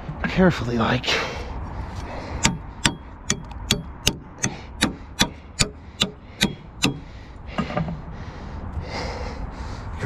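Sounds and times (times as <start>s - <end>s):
hammer striking metal: 2.4s - 7.1s.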